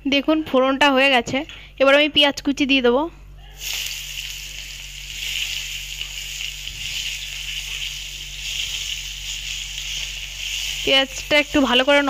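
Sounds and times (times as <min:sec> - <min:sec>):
onions sizzling in hot oil: 0:03.6 - 0:12.0
spatula stirring in wok: 0:03.6 - 0:12.0.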